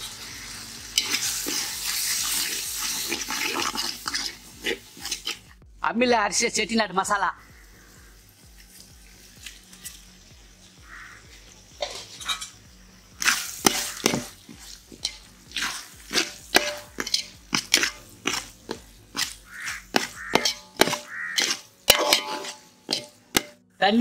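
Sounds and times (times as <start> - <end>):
metal spoon scraping metal pot: 0.9 - 5.5, 11.8 - 12.6, 13.2 - 23.6.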